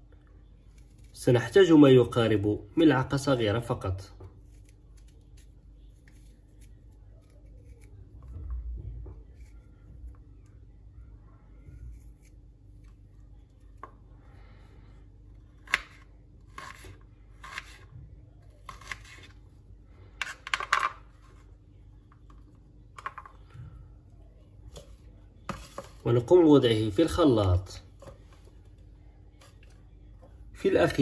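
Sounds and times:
faint steady hum: 0:00.0 - 0:31.0
knife cutting on a cutting board: 0:15.6 - 0:17.9, 0:18.6 - 0:19.4.

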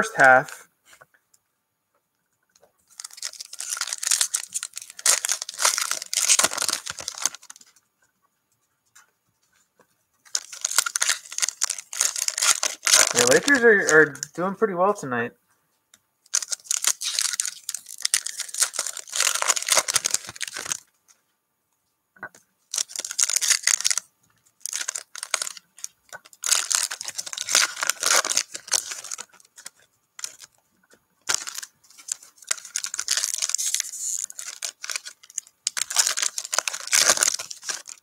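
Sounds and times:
foil wrapper tearing and crinkling: 0:02.9 - 0:07.7, 0:10.3 - 0:14.3, 0:16.3 - 0:20.9, 0:22.7 - 0:30.5, 0:31.2 - 0:38.0.

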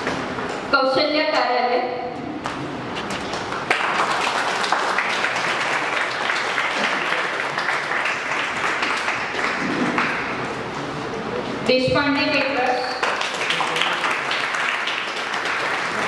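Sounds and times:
audience applauding: 0:03.1 - 0:10.6, 0:12.5 - 0:16.0.

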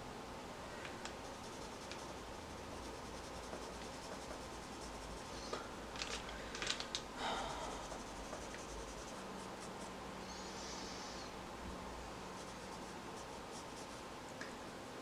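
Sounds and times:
pencil scratching on paper: 0:01.2 - 0:05.5, 0:07.6 - 0:10.0, 0:12.3 - 0:14.1.

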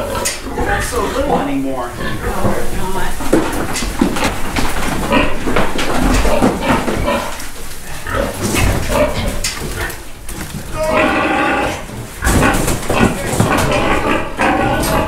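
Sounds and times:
piglets squealing: 0:06.0 - 0:15.0.

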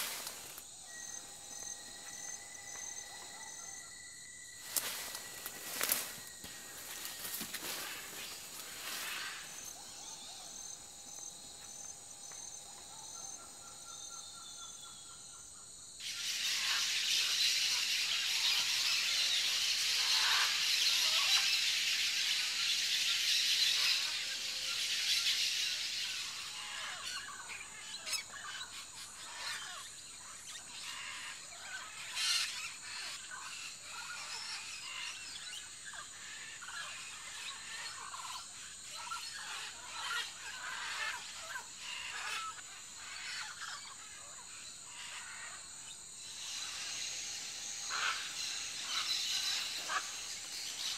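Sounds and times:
dense high hiss: 0:00.0 - 0:03.2, 0:04.6 - 0:14.0, 0:45.8 - 0:50.9
steady high-pitched whine: 0:00.0 - 0:29.6, 0:43.0 - 0:50.9
bird calls: 0:00.0 - 0:50.9.

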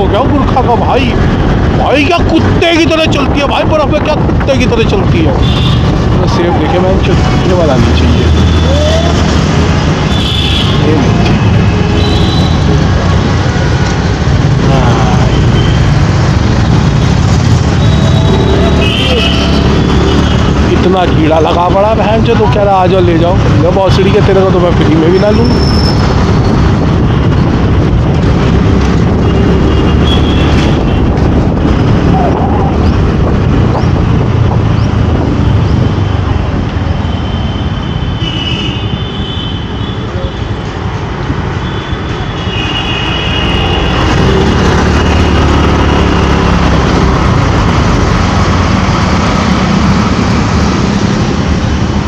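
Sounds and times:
road rumble: 0:00.0 - 0:52.0
wind: 0:00.0 - 0:52.0.

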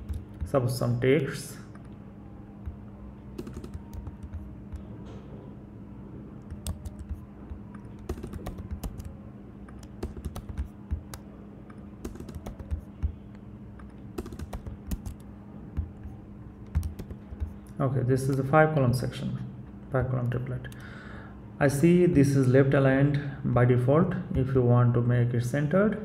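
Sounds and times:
typing on computer keyboard: 0:00.0 - 0:00.5, 0:03.4 - 0:04.9, 0:06.4 - 0:09.1, 0:09.7 - 0:13.2, 0:13.8 - 0:17.6
low steady hum: 0:00.0 - 0:26.0.

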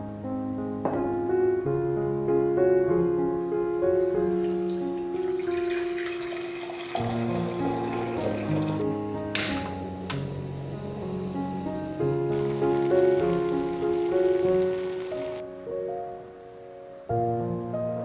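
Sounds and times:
background music with held notes: 0:00.0 - 0:18.0
water pouring into a jug: 0:04.5 - 0:08.8.

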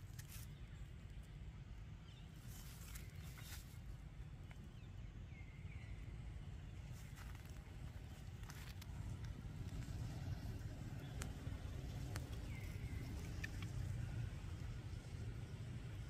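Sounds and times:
steady low rumble: 0:00.0 - 0:16.0
light crackles and taps: 0:07.0 - 0:10.0, 0:11.0 - 0:14.0.

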